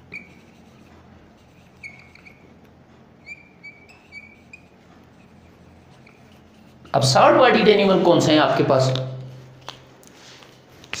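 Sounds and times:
marker squeaking on whiteboard: 0.0 - 7.4
faint low room hum: 0.0 - 11.0.

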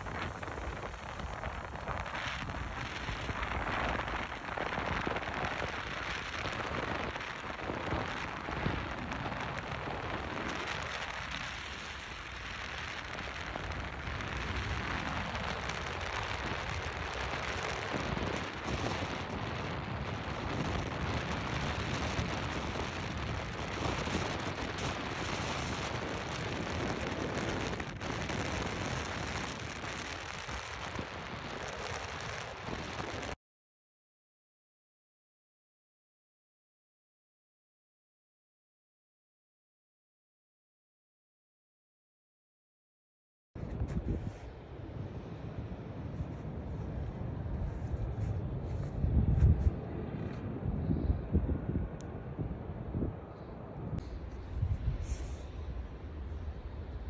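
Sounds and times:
wind noise: 0.0 - 33.4, 43.6 - 57.0
tyres hissing on slushy road: 54.8 - 55.8.

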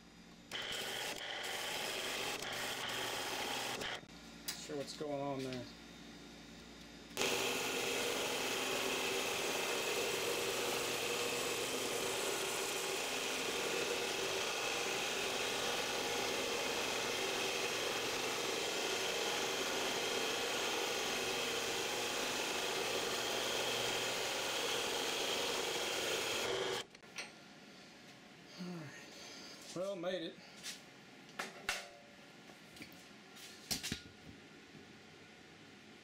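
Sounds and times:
band saw cutting metal: 0.5 - 4.1, 7.2 - 26.9.

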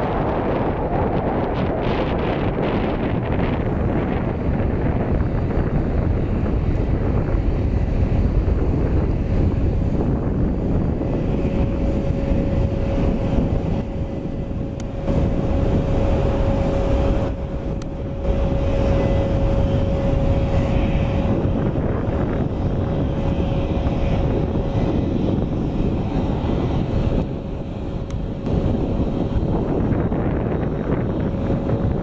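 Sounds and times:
jet engines rumbling: 0.0 - 32.0
wind buffeting microphone: 0.0 - 32.0.

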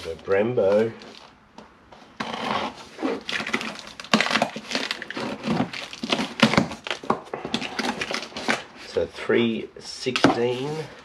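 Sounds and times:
sharp cardboard cracks: 2.2 - 8.9
cardboard scraping and tearing: 2.2 - 9.1.

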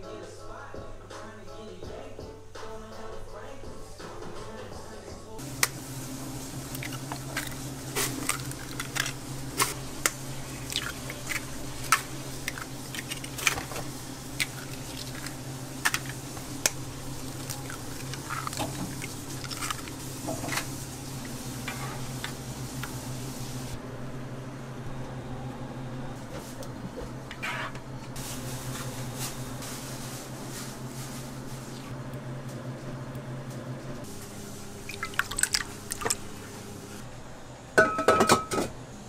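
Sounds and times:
egg separator scooping yolks: 5.4 - 23.8, 34.0 - 37.0
steady low hum: 5.4 - 39.0
wet squishing of egg whites: 6.6 - 21.4, 34.8 - 36.4
eggshells cracking: 6.7 - 20.0.

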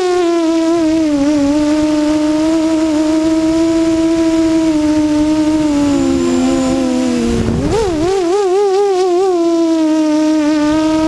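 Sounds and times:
drone motors whining: 0.0 - 11.0
wind noise rush: 0.6 - 11.0.

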